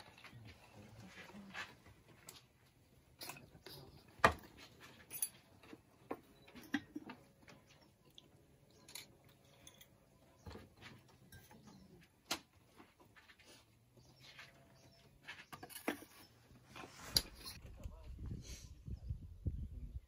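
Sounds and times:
ceramic and glass gear clicking: 0:08.6 - 0:10.1.

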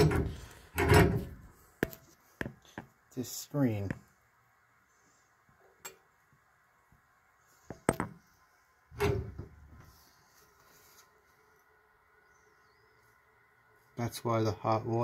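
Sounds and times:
brass fittings clicking and clunking: 0:00.0 - 0:02.0.

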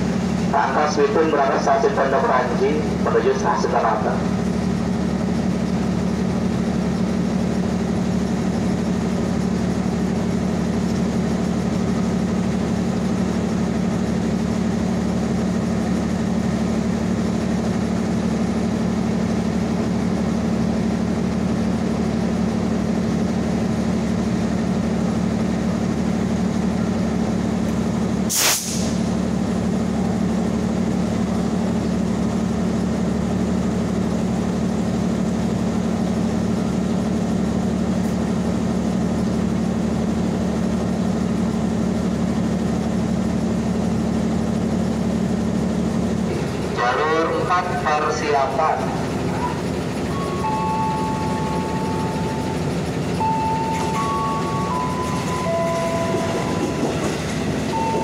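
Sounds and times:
brief sharp hiss: 0:28.3 - 0:29.0
electric trains running: 0:28.9 - 0:58.0.

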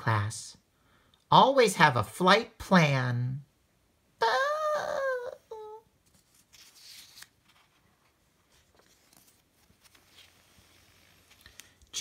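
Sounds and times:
paper page swishing: 0:06.0 - 0:11.8.

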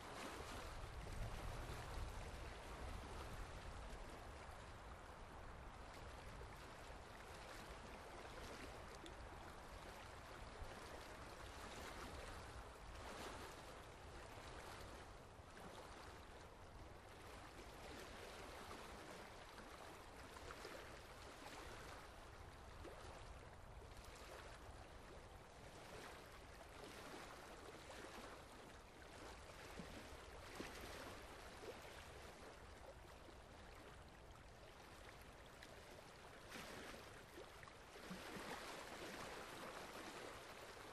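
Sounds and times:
faint trickle of water: 0:00.0 - 0:40.9
soft ticks of water drops: 0:03.8 - 0:11.0.

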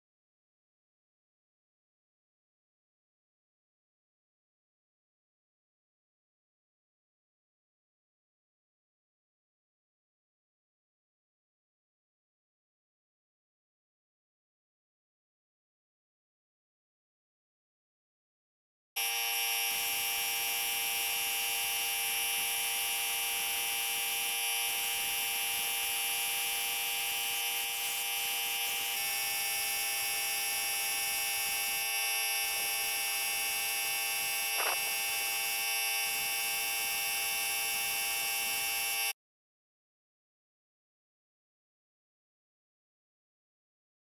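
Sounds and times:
spray gun blowing: 0:19.0 - 0:39.0
air compressor running: 0:19.0 - 0:39.1.

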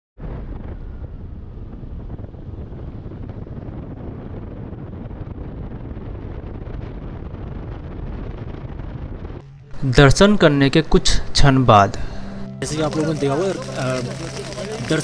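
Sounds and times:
wind buffeting microphone: 0:00.2 - 0:09.8.

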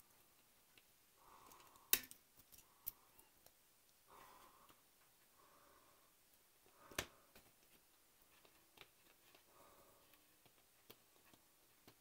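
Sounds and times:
faint ticks of tools and plastic parts: 0:00.0 - 0:05.3, 0:06.3 - 0:12.0.

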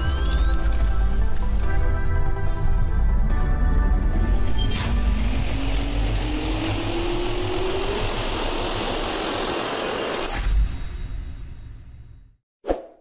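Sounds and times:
jet turbine engine spooling up: 0:04.6 - 0:10.2.

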